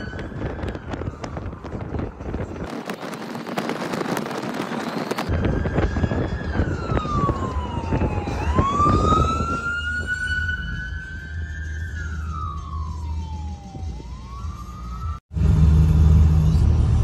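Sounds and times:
siren wailing: 0:00.0 - 0:03.1, 0:03.9 - 0:15.2
wind buffeting: 0:00.0 - 0:11.6
road noise: 0:00.0 - 0:17.0.

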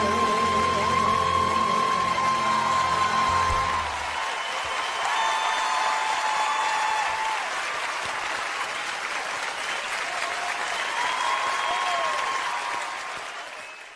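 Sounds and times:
audience applauding: 0:00.0 - 0:13.9
cheers and whistles: 0:00.0 - 0:13.9.

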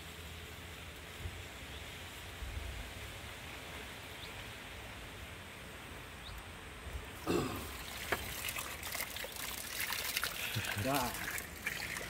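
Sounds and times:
water running from an outlet: 0:07.2 - 0:12.0.

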